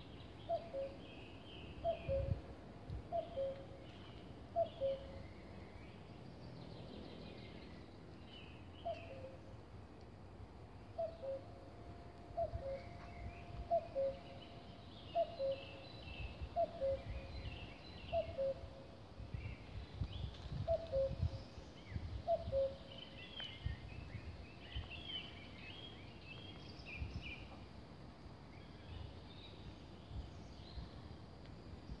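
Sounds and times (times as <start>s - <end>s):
cuckoo calling: 3.1s - 3.9s, 4.6s - 5.2s, 10.9s - 11.5s, 12.3s - 15.8s, 16.5s - 17.3s, 18.1s - 18.8s, 20.7s - 21.2s, 22.3s - 23.0s.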